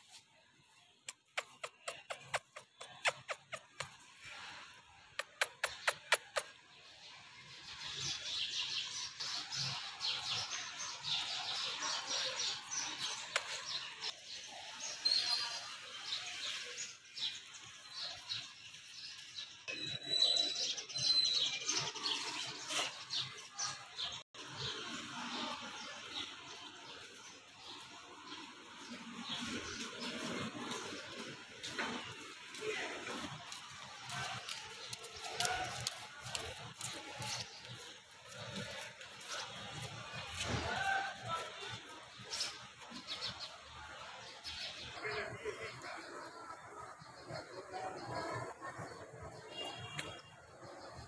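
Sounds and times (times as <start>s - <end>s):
small birds chirping: 0.7s - 4.4s, 5.0s - 24.8s, 25.7s - 40.5s
sharp clicks: 1.1s - 4.0s, 5.2s - 6.5s.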